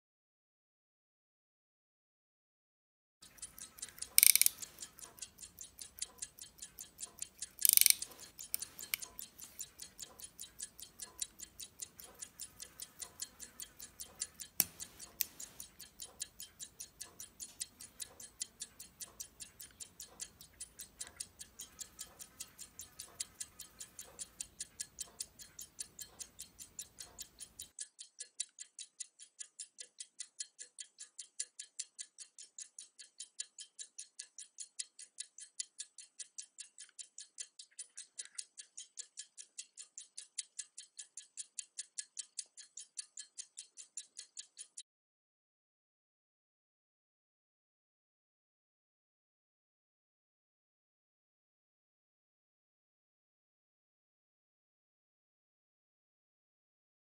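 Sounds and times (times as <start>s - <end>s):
watch ticking quickly: 3.2s - 44.8s.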